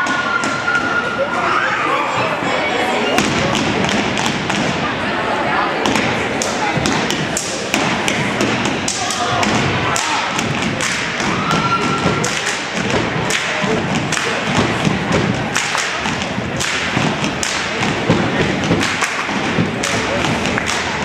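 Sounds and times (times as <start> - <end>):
stomping and slapping on wood floor: 5.9 - 21.0.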